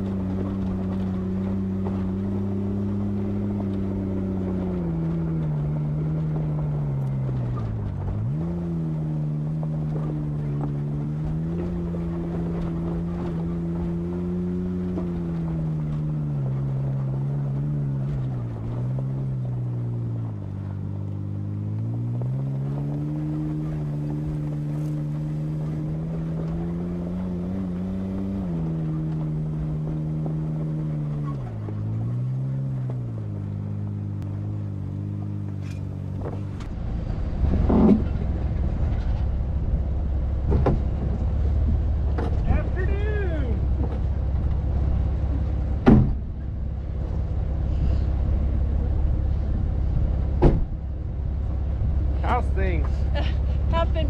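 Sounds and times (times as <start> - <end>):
off-road vehicle engine: 0.0 - 54.0
knocks and rustles: 40.3 - 42.5.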